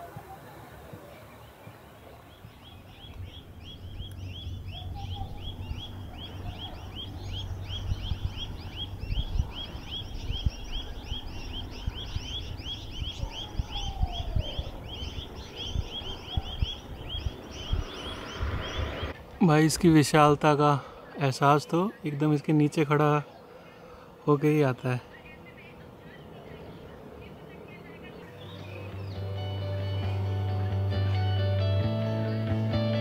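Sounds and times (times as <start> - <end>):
low rumbling background noise: 0.0 - 30.1
bird chirping rapidly: 2.3 - 19.6.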